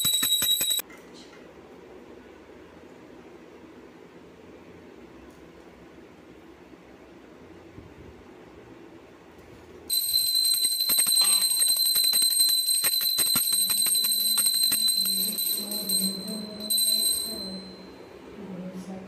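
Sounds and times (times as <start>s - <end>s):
hand bell ringing: 0.0s - 0.8s, 9.9s - 18.0s.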